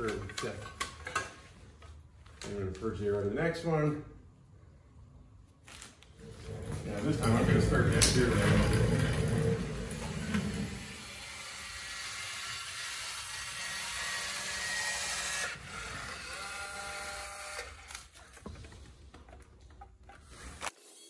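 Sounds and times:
casters rumbling on concrete: 0:06.2 - 0:11.1.

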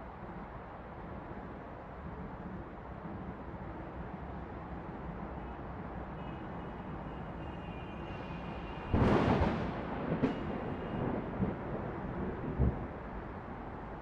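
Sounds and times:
distant city traffic hum: 0:00.0 - 0:14.0
thunderclap rumbling: 0:08.8 - 0:13.5
sharp thunder crack: 0:08.9 - 0:12.8.

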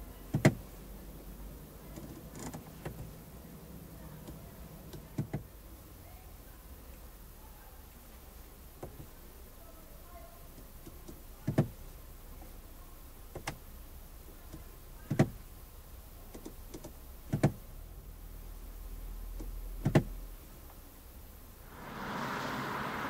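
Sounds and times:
low cabin hum: 0:21.7 - 0:23.0.

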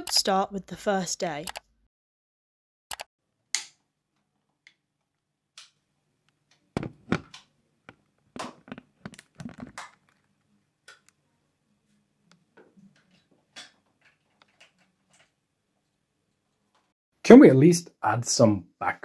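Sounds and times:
footsteps: 0:06.8 - 0:07.3
tripod and camera clicks and thuds: 0:06.8 - 0:07.4, 0:08.4 - 0:10.0.

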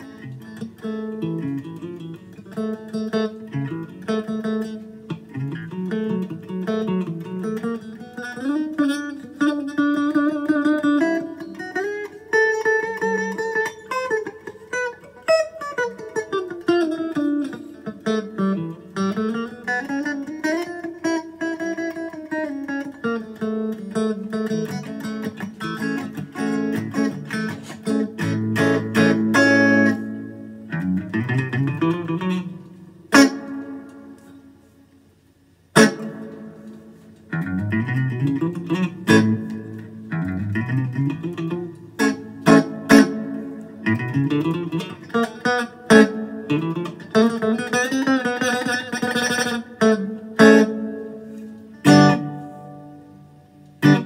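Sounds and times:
electric guitar playing: 0:00.0 - 0:54.0.

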